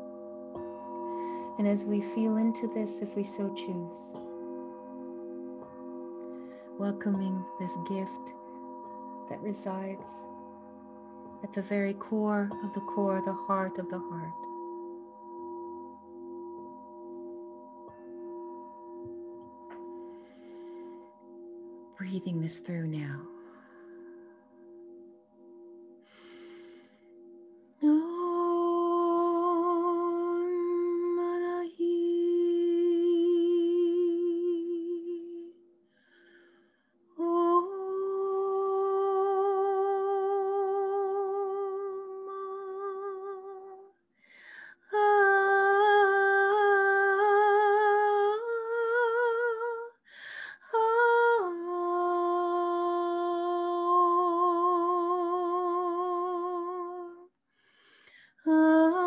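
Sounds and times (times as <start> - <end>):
short breaths: 57.5 - 58.4.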